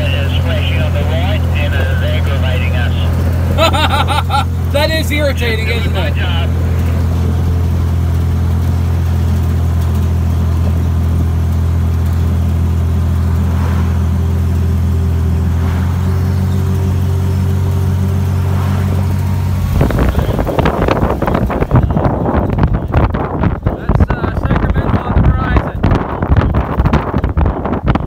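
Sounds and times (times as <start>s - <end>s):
jeep engine droning: 0.0s - 28.0s
wind noise on microphone: 19.6s - 28.0s.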